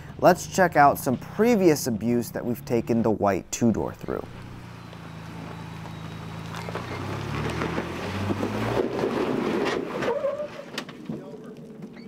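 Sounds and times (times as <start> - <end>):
engine pulling under load: 0.0 - 12.0
tyres grinding on rock: 5.4 - 12.0.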